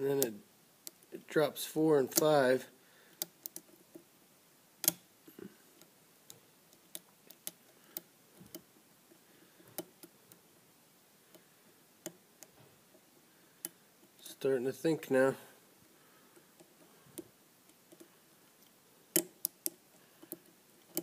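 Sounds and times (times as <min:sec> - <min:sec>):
light metallic ticks of lock picking: 0:19.1 - 0:21.0.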